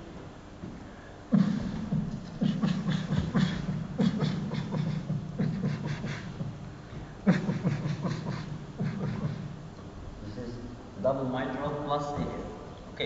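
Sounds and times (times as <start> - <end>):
man mimicking heart sounds: 1.3 - 9.7.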